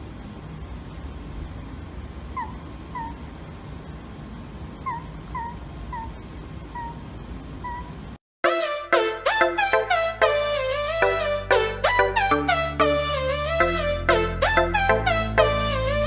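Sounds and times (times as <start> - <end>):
low steady background rumble: 0.0 - 8.2
owl squeaky calls: 2.4 - 3.2, 4.8 - 7.0, 7.6 - 8.0.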